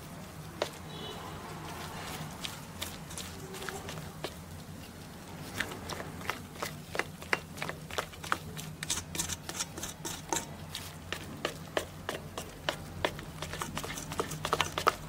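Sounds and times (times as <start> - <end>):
batter slapping in metal bowl: 5.5 - 15.0.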